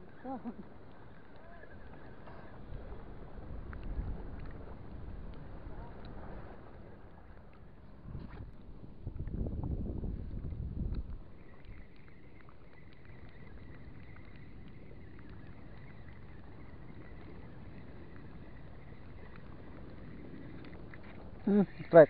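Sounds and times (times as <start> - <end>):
choppy water around boat: 0.0 - 22.0
wind: 0.0 - 22.0
wind rumble on microphone: 0.0 - 22.0
faint thin high whine: 10.4 - 22.0.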